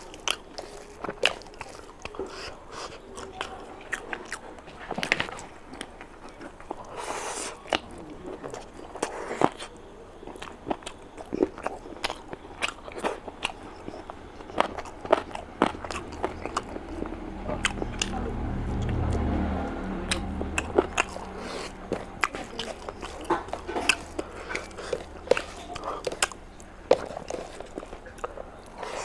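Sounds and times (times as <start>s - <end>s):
person chewing crunchy food: 0.0s - 29.0s
low hum: 13.9s - 27.0s.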